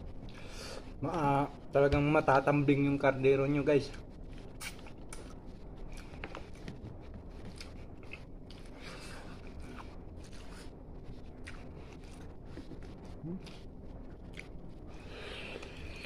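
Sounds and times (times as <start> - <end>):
person chewing: 7.4 - 16.0.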